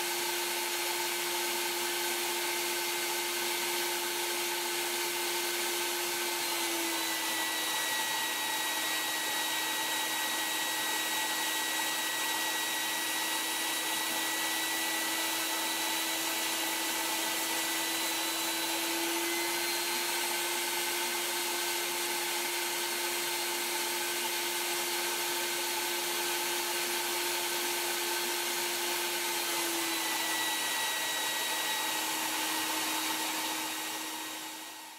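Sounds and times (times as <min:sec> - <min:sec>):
shop vac motor whining: 0:00.0 - 0:34.9.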